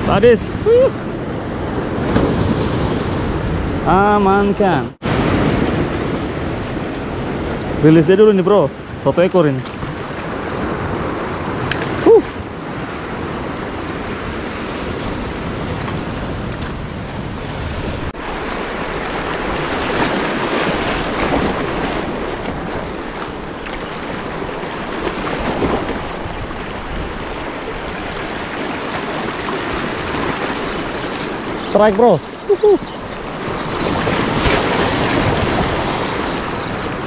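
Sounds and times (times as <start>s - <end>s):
surf washing over rocks: 0.0s - 37.0s
wind buffeting microphone: 9.7s - 37.0s.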